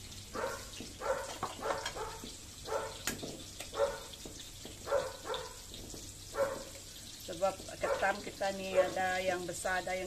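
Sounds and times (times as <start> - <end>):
dog barking: 0.3 - 3.0, 3.7 - 4.2, 4.8 - 5.6, 6.3 - 6.7, 7.8 - 9.1.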